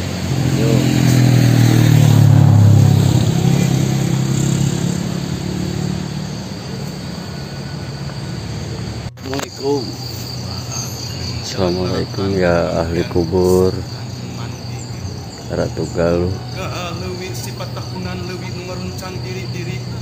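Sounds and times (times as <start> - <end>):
insects buzzing: 0.0 - 20.0
vehicle engine drone: 0.0 - 20.0
man's voice: 9.2 - 20.0.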